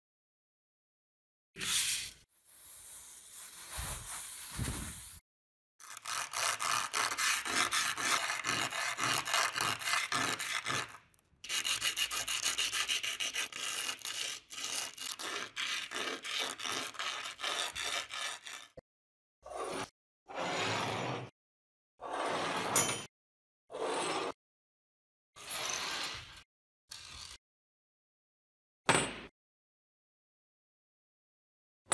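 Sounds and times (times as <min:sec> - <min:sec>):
metal rubbed on sandpaper: 0:01.6 - 0:05.2, 0:06.0 - 0:18.8.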